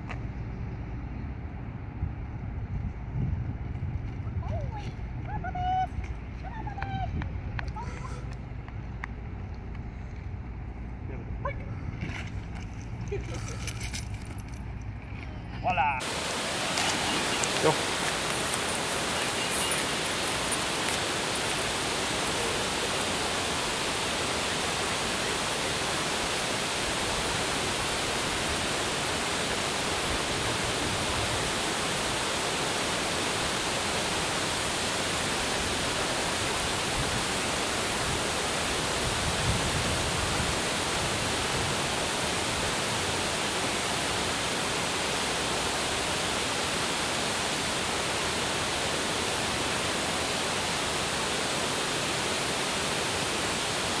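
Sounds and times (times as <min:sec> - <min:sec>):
water pouring over a dam spillway: 0:16.0 - 0:54.0.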